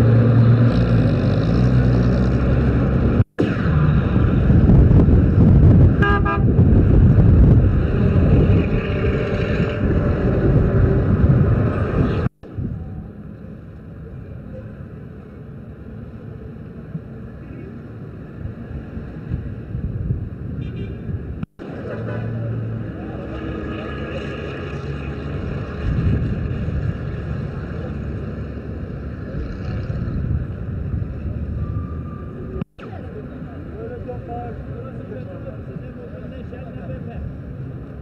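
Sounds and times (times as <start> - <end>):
road traffic and car engines: 0.0 - 38.0
car horn toot: 6.0 - 6.6.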